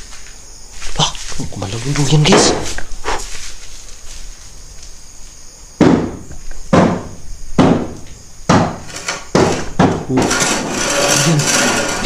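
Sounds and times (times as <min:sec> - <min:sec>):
heavy thuds: 0:02.0 - 0:03.5, 0:05.8 - 0:10.4.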